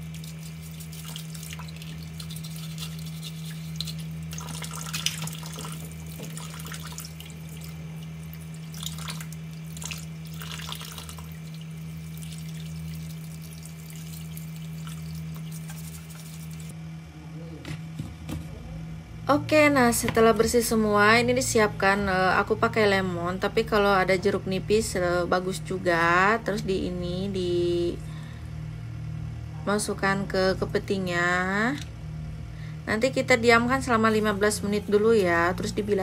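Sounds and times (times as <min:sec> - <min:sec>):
toothbrush scrubbing crab: 0:00.0 - 0:16.7
water sloshing in plastic basin: 0:00.0 - 0:16.7
steady low hum: 0:00.0 - 0:36.0.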